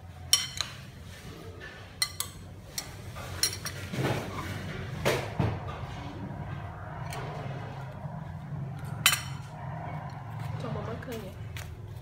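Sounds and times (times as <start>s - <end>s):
utensils and dishes clinking: 0.2s - 4.8s, 8.8s - 11.2s.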